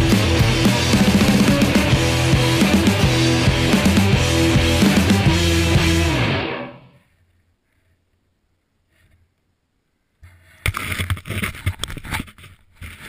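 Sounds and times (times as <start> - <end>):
knocks and scrapes: 10.2 - 13.0.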